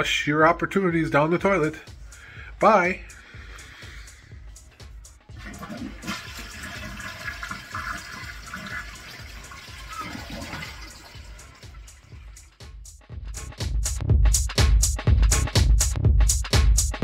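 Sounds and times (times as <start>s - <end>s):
toilet flushing: 5.3s - 12.6s.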